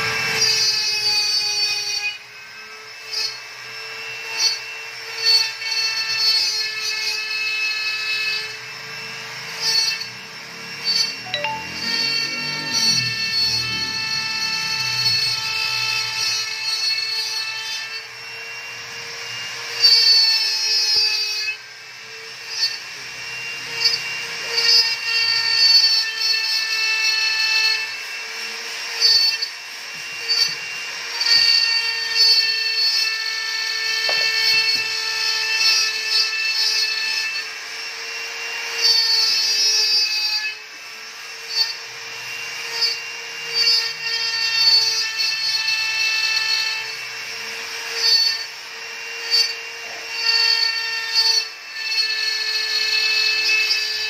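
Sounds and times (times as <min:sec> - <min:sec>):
router spindle whine: 0:00.0 - 0:54.0
stepper motors whining: 0:02.4 - 0:36.3.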